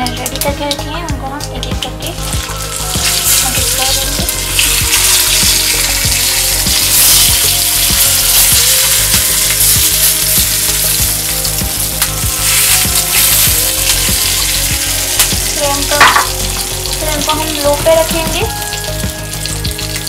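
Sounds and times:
food sizzling in hot oil: 0.0 - 20.0
spices crackling in oil: 0.0 - 20.0.

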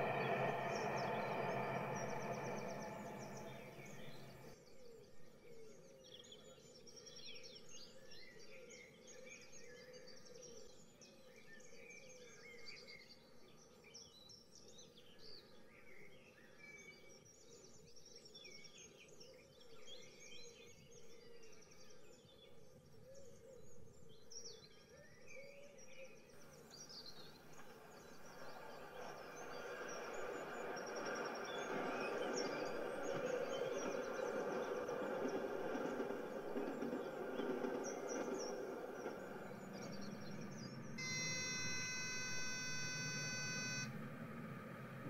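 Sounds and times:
low steady hum: 0.0 - 4.5, 39.6 - 45.0.

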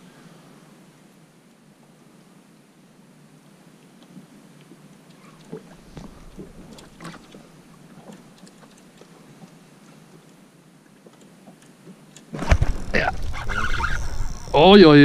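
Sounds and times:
clicks and knocks on a boat: 4.1 - 10.4, 11.0 - 12.6
low rumble: 12.4 - 15.0.

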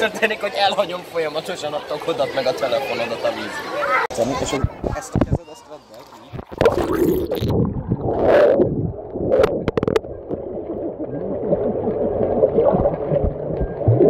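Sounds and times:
underwater gurgling rumble: 6.0 - 14.0.

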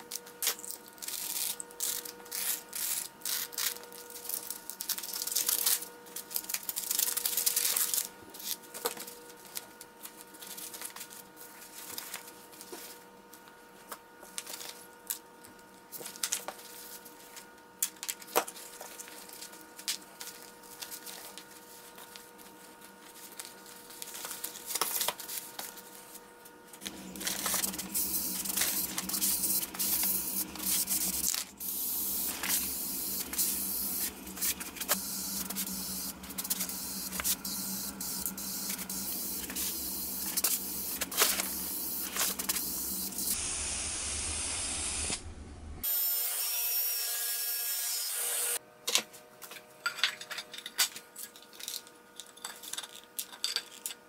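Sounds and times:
low hum: 26.8 - 45.8
aerosol spray hissing: 27.1 - 45.2.

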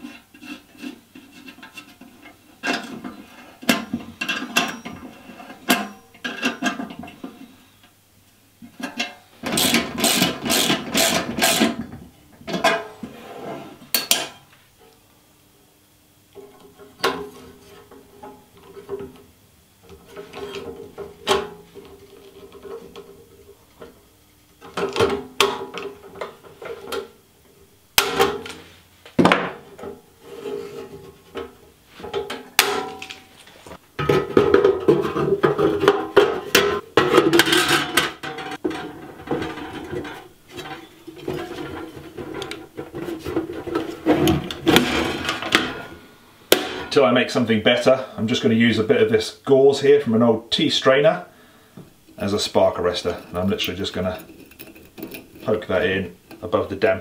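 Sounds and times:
metal parts clinking and scraping: 52.9 - 56.5.

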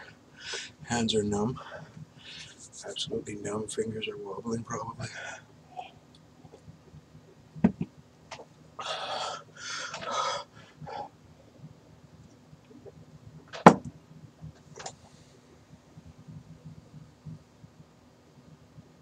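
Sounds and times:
man huffing breaths: 8.8 - 11.1.

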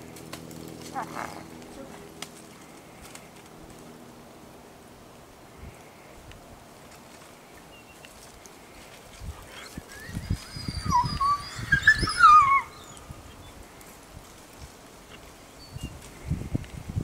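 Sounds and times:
wolves whining and whimpering: 8.8 - 13.6.

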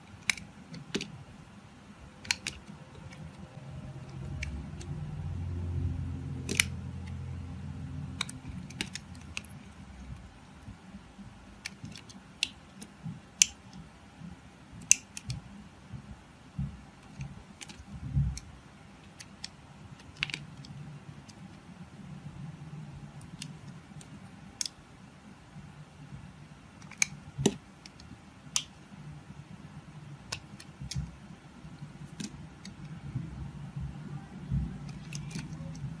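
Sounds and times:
faint low rumble: 1.2 - 11.7, 28.9 - 36.0.

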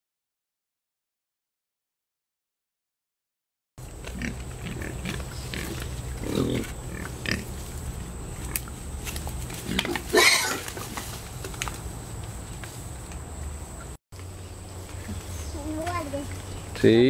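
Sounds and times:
pigs grunting: 4.0 - 7.6, 9.6 - 11.0
harsh pig call: 4.1 - 7.5, 9.6 - 10.8.

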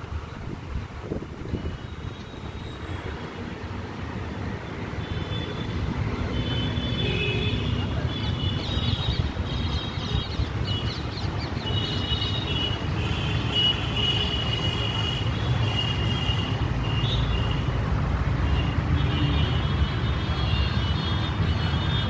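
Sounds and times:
distant traffic rumble: 0.0 - 22.0
birds chirping: 8.4 - 12.7.

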